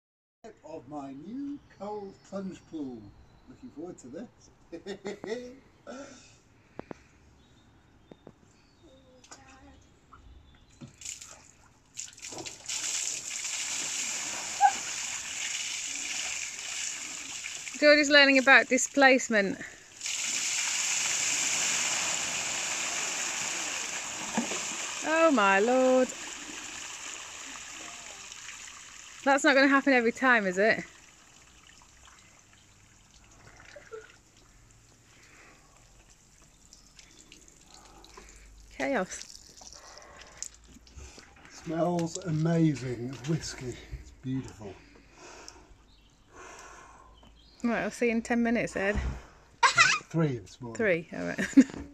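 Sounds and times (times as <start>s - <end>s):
water splashing in a barrel: 10.9s - 18.8s, 19.7s - 41.2s
water pouring down concrete steps: 11.0s - 43.6s.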